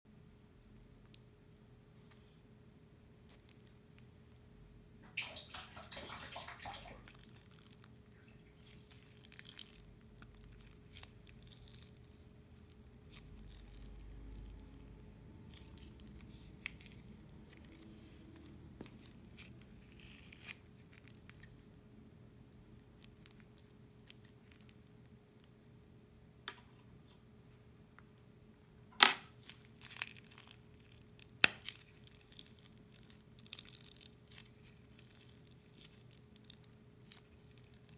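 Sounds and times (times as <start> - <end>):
glue squishing: 7.0 - 21.6, 29.3 - 37.9
plastic piping bag crinkling: 7.0 - 21.7, 22.5 - 25.5, 29.3 - 37.9.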